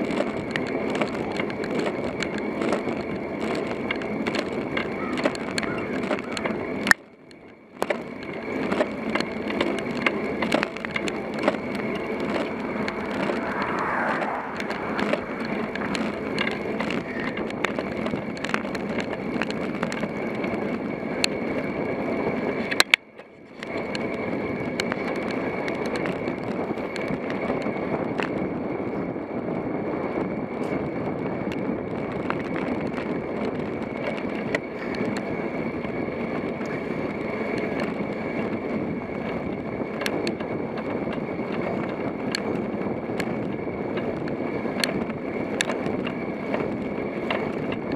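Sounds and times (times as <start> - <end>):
bicycle rolling on asphalt: 0.0 - 47.9.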